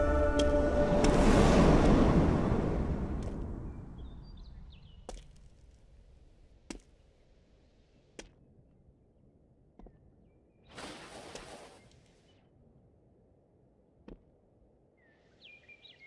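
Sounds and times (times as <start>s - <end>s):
music: 0.0s - 2.6s.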